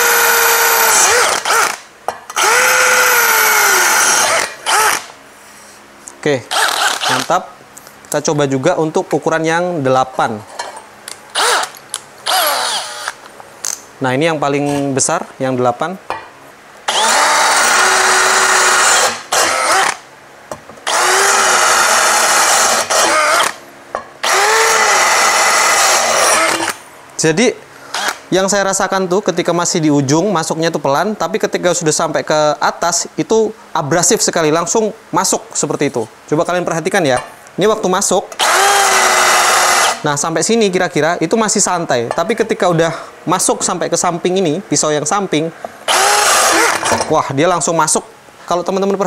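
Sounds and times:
drill bit grinding tile: 0.0 - 1.8, 2.4 - 5.0, 6.5 - 7.3, 11.4 - 13.2, 16.9 - 20.0, 20.9 - 23.6, 24.2 - 26.8, 38.4 - 40.0, 45.9 - 47.1
drill motor whine: 0.0 - 5.1, 6.5 - 7.3, 11.3 - 13.2, 16.9 - 20.0, 20.8 - 23.6, 24.2 - 26.8, 27.9 - 28.2, 38.4 - 40.0, 45.9 - 47.0.

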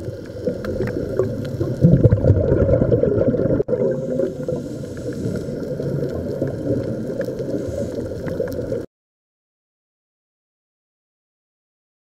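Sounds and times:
muffled underwater rumble: 0.0 - 8.9.

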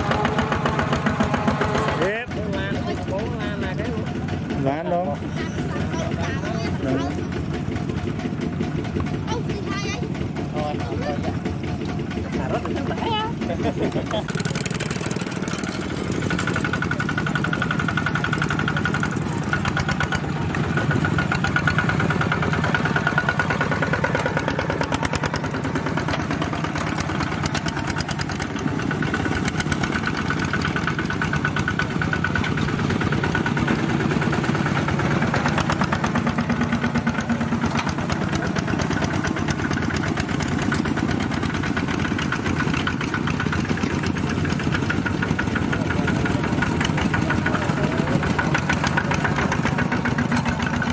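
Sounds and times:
diesel engines chugging: 0.0 - 50.9.

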